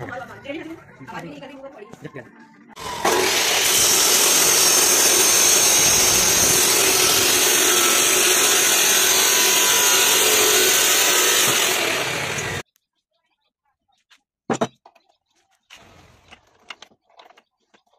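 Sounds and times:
chop saw grinding metal: 2.8s - 12.6s.

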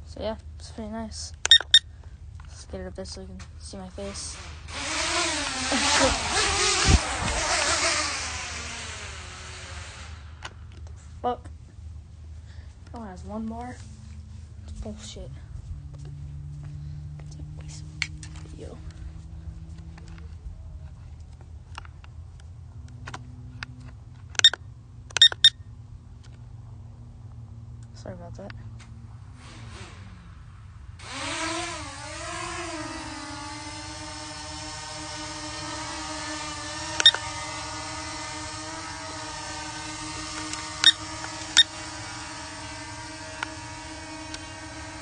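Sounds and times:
low steady hum: 0.0s - 29.4s
short electronic beeps: 1.5s - 1.9s, 25.2s - 25.6s
drone propellers buzzing: 4.0s - 12.8s, 13.8s - 27.7s, 29.2s - 45.0s
sharp clicks: 21.7s - 25.5s, 37.0s - 37.2s.

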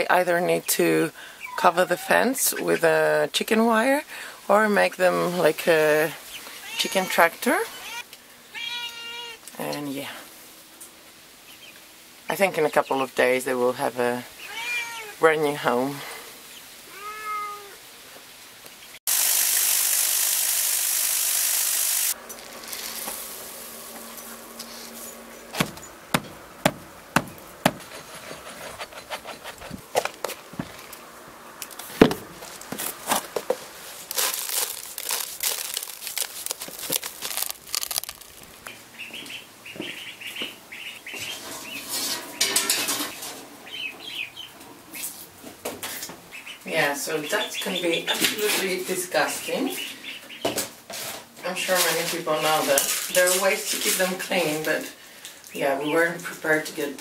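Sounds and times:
ducklings peeping: 11.4s - 13.1s, 38.6s - 41.9s, 43.6s - 44.6s, 46.3s - 50.6s
loud steady hiss: 19.1s - 25.1s
chicks cheeping: 38.7s - 41.9s.

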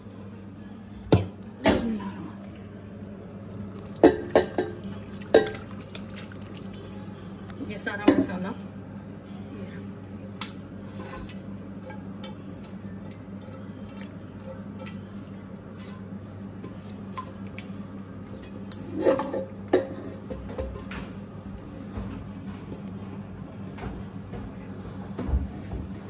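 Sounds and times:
steady low hum: 0.0s - 26.0s
metal pans knocking: 4.0s - 5.7s
spatula scraping food from pan: 10.8s - 11.4s.

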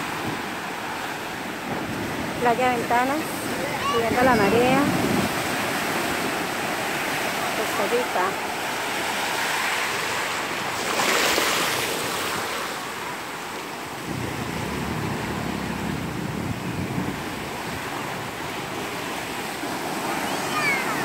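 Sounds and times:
ocean surf washing: 0.0s - 21.0s
wind rumble on microphone: 1.4s - 6.6s, 13.9s - 19.4s.

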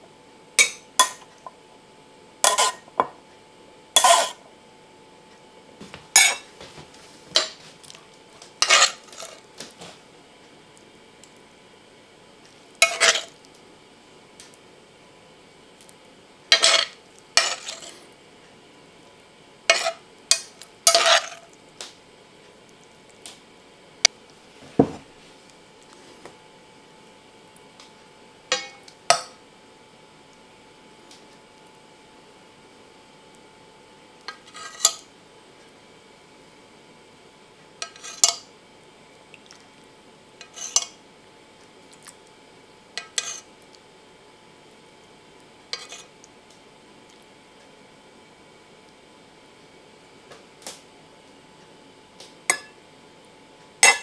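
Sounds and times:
fork scraping a ceramic plate: 2.4s - 2.9s, 4.0s - 4.4s, 6.2s - 6.5s, 8.6s - 9.4s, 12.8s - 13.4s, 16.5s - 18.0s, 19.7s - 20.0s, 20.9s - 21.5s, 34.3s - 35.1s, 37.8s - 38.4s, 40.4s - 41.0s, 43.0s - 43.5s, 45.7s - 46.1s.

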